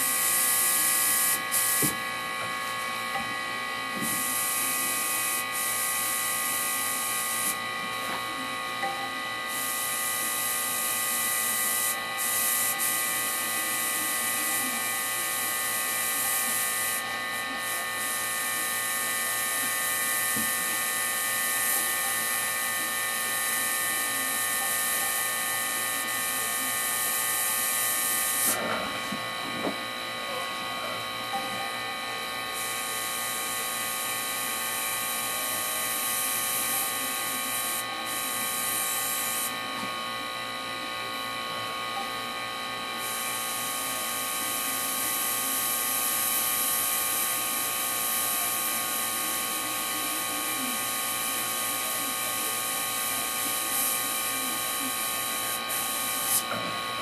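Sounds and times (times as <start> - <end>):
airbrush air hiss: 0.0 - 2.0, 4.0 - 7.6, 9.5 - 22.6, 23.2 - 28.6, 43.0 - 56.5
airbrush compressor whirring: 0.0 - 29.8, 31.7 - 39.7, 42.2 - 57.0.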